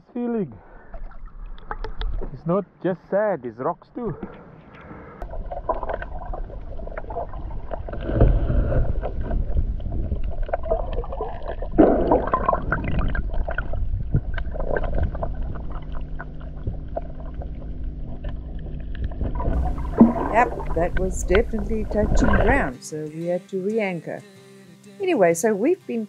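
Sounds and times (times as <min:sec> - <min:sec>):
water sloshing underwater: 0:00.7 - 0:02.4, 0:04.2 - 0:22.8
water swooshes: 0:05.3 - 0:22.8
faint steady hum: 0:11.1 - 0:22.7.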